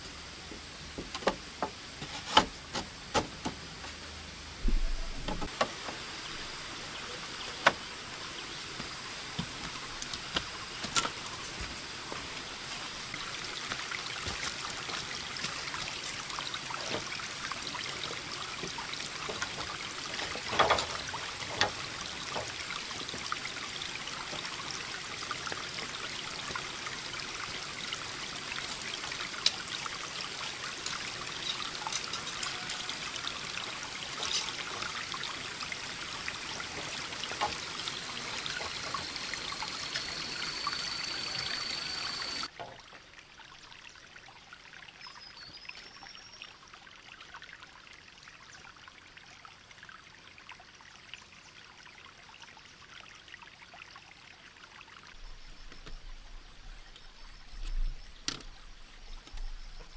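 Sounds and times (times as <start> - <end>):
steady hiss: 0.0 - 42.5.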